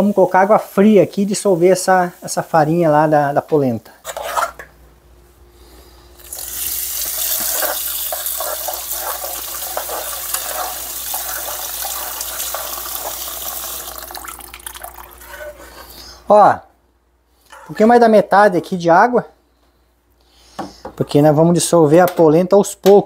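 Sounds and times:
faucet running water into saucepan: 6.2s - 15.3s.

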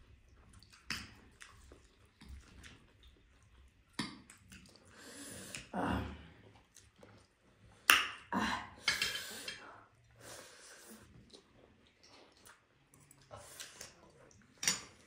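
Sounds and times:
slurping and chewing: 0.0s - 5.7s, 6.3s - 7.9s, 9.0s - 15.0s
utensils clinking on dishes: 8.8s - 9.7s.

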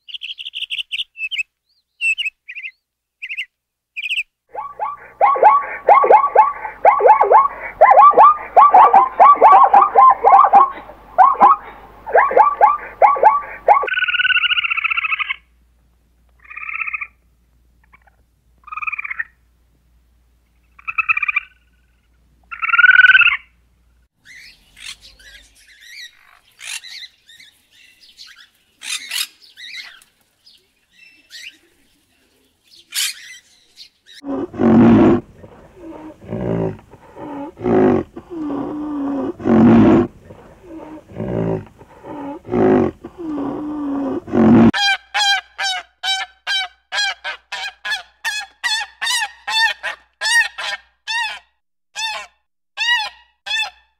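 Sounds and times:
high-pitched chirps: 4.5s - 13.9s
animal calls: 4.5s - 15.4s, 34.2s - 51.4s
rhythmic animal calls: 4.5s - 15.4s.

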